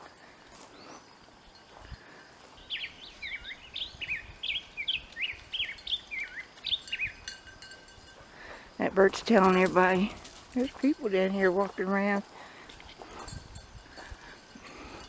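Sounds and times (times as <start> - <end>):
bird alarm chirps: 2.6 - 7.4.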